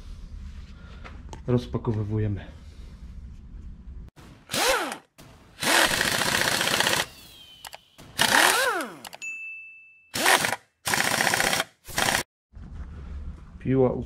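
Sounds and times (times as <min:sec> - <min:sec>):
firework whistles rising and falling: 0:06.9 - 0:08.2.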